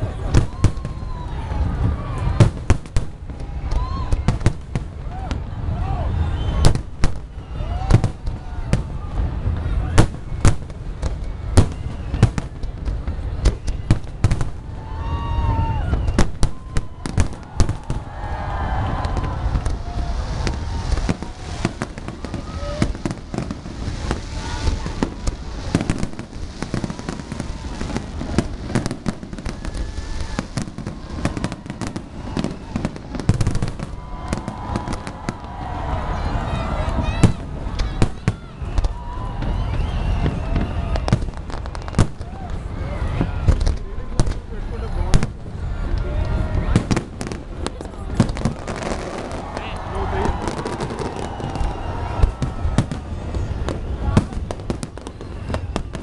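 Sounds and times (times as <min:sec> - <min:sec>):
firework shells bursting: 0:15.9 - 0:35.9.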